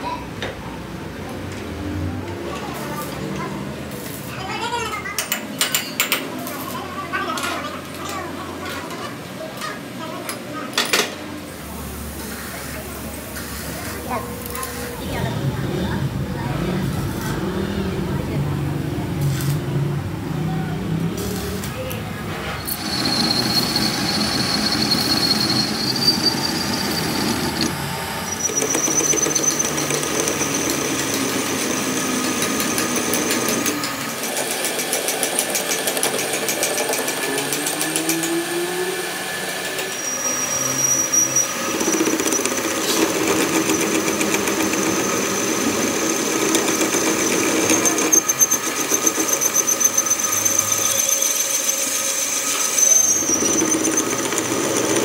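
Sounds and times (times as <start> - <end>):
high whine of cutting tool: 22.6 - 34.4, 37.0 - 55.0
metal lathe droning: 22.6 - 55.0.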